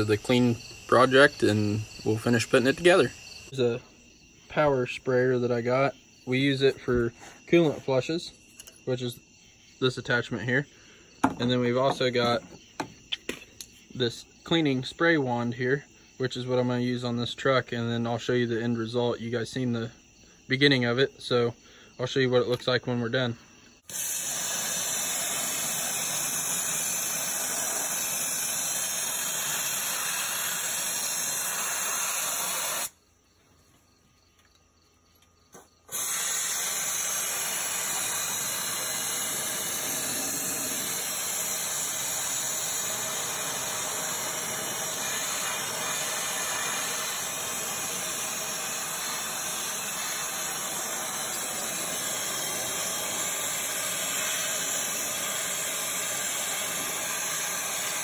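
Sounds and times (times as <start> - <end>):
power sprayer hissing spray: 0.0 - 3.6, 23.8 - 33.0, 35.9 - 58.0.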